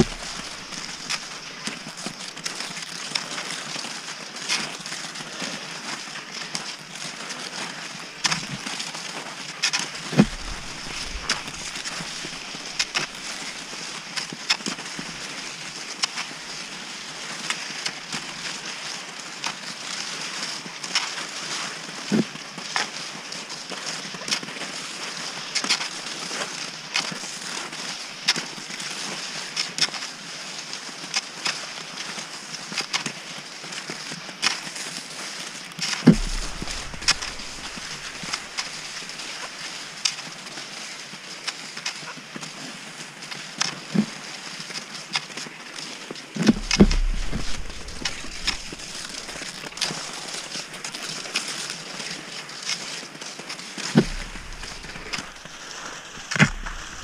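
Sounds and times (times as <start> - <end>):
heavy thumps: 0.0 - 1.1, 10.2 - 13.5, 36.1 - 39.2, 46.4 - 51.0, 54.0 - 57.0
ski poles clicking and crunching: 0.0 - 2.8, 9.6 - 15.7, 35.9 - 39.6, 46.4 - 53.0, 53.8 - 57.0
skis sliding over snow: 0.0 - 57.0.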